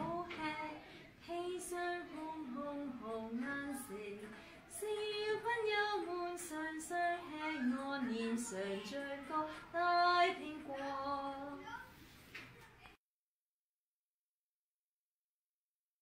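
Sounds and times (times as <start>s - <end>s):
woman singing unaccompanied: 0.0s - 11.7s.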